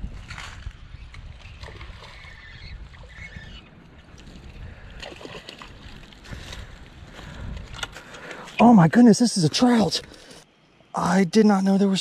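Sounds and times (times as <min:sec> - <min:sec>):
creek water sloshing and splashing: 0:01.4 - 0:03.2, 0:04.0 - 0:08.6.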